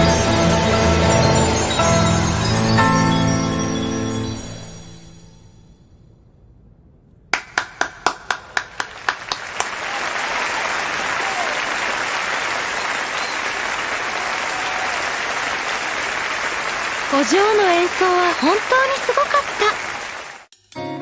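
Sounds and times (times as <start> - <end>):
person clapping: 7.4 - 17.1
audience applause: 7.4 - 20.5.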